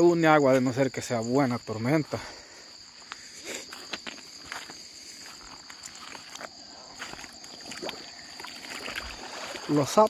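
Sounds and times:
insects and frogs chorus: 0:00.0 - 0:10.0
footsteps on wet stones: 0:03.0 - 0:10.0.

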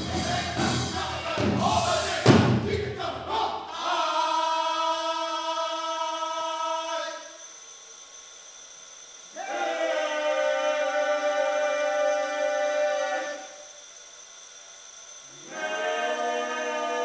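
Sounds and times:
voices holding long note: 0:09.3 - 0:13.7, 0:15.2 - 0:17.0.

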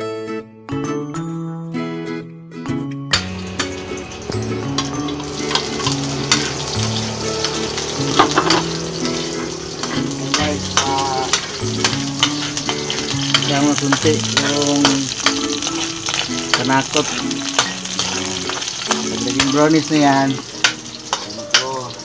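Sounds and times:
garlic and onion sizzling in oil: 0:03.1 - 0:22.0
metal ladle scraping wok: 0:03.4 - 0:19.5.

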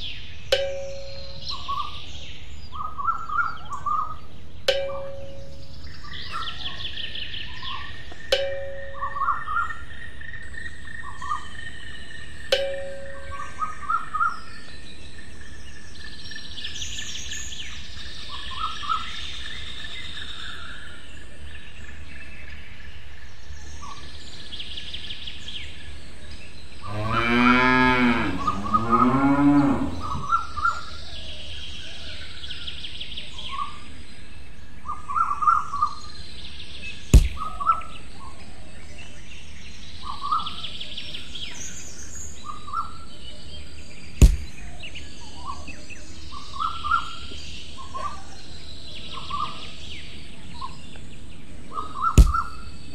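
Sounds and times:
small birds chirping: 0:00.0 - 0:52.9
cow mooing: 0:26.9 - 0:30.3
sharp click: 0:37.2 - 0:37.5, 0:44.2 - 0:44.6, 0:52.2 - 0:52.5.

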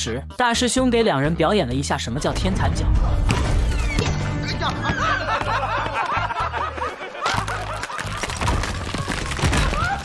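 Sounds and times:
men laughing and yelling: 0:04.4 - 0:09.0.

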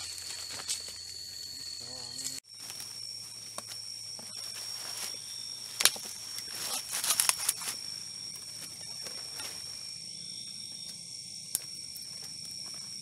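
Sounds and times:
high-pitched insect drone: 0:00.0 - 0:13.0
leaves rustling and stems snapping: 0:04.5 - 0:09.7
stem cracking: 0:05.7 - 0:09.6.

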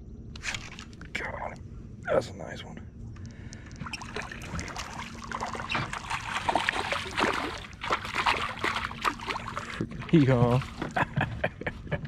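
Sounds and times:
fish splashing at surface: 0:00.4 - 0:01.1, 0:03.8 - 0:11.0.

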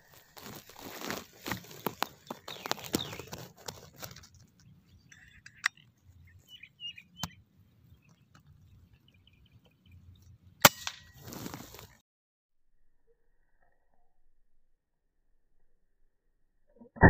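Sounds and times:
handling rustles: 0:00.0 - 0:05.4, 0:10.8 - 0:12.0
faint bird chirps: 0:01.7 - 0:03.5, 0:04.7 - 0:10.2.

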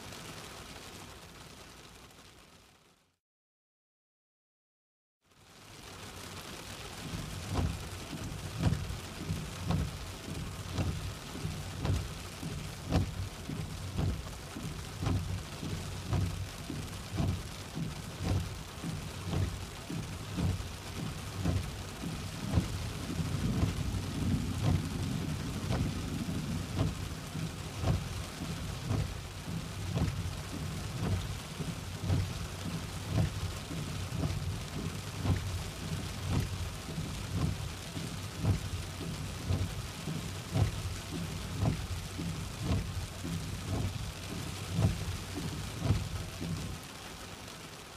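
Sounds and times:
rain hiss: 0:00.0 - 0:03.2, 0:05.3 - 0:47.9
windscreen wipers sweeping: 0:05.8 - 0:47.9
low rumble: 0:21.0 - 0:31.4.

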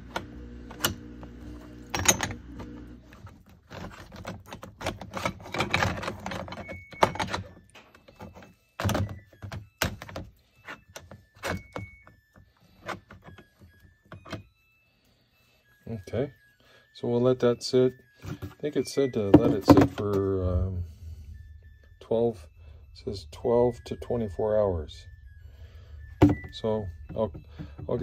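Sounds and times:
metal tools knocking and clinking: 0:01.9 - 0:02.4, 0:19.3 - 0:20.2.

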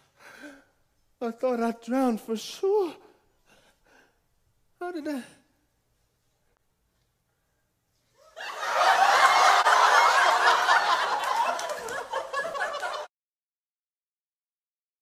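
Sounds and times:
theatre audience laughing: 0:08.3 - 0:13.1.

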